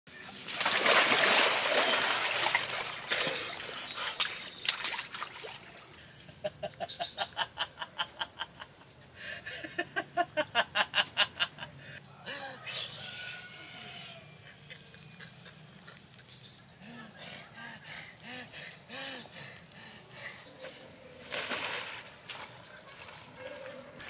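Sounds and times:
body splashing into water: 0:00.4 - 0:05.9, 0:21.2 - 0:23.1.

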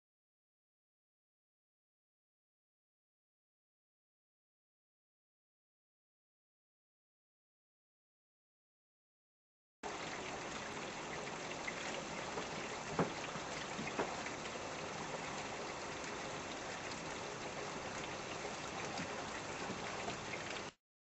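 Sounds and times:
raindrops tapping: 0:09.9 - 0:20.7
heavy rain pouring: 0:09.9 - 0:20.8.

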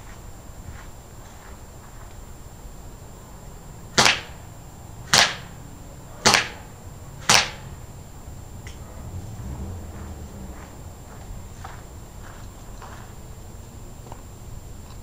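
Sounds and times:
airsoft gun shots: 0:04.0 - 0:04.4, 0:05.1 - 0:05.5, 0:06.2 - 0:07.6.

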